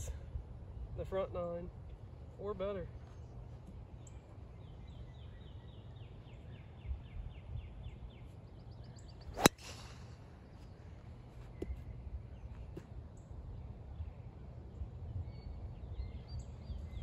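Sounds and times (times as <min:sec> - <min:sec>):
bird chirping: 0:03.0 - 0:17.0
club striking golf ball: 0:09.3 - 0:10.2
golf club whoosh: 0:09.3 - 0:10.2.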